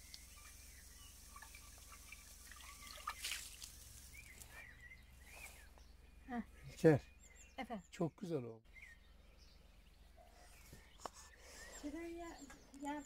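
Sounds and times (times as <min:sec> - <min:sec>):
water trickling and dripping: 0:00.0 - 0:04.5
water splash: 0:01.3 - 0:04.2.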